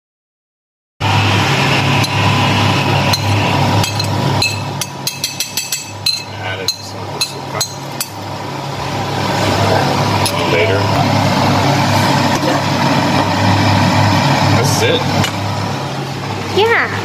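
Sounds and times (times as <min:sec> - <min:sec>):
steady low hum: 0:01.0 - 0:17.0
spoon and plate clinking on pan: 0:03.2 - 0:08.2.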